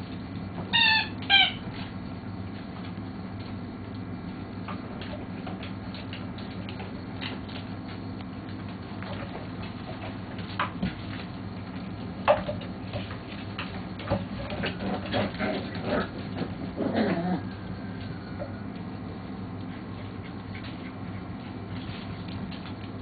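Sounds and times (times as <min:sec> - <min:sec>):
steady low hum: 0:00.0 - 0:23.0
puppy paws pattering on hard floor: 0:19.6 - 0:23.0.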